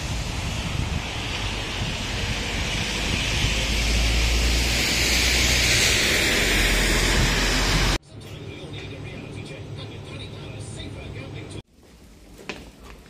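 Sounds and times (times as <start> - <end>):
wind rumbling on microphone: 0.0 - 8.0.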